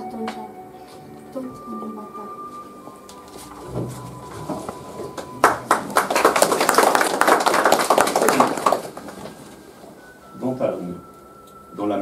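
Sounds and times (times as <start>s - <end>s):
small group clapping: 5.0s - 9.7s.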